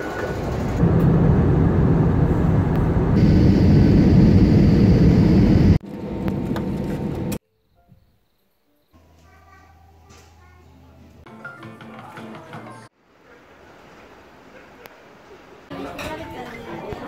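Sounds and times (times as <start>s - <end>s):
engine hum: 0.0s - 7.4s
jet engine and airflow rush: 0.4s - 7.4s.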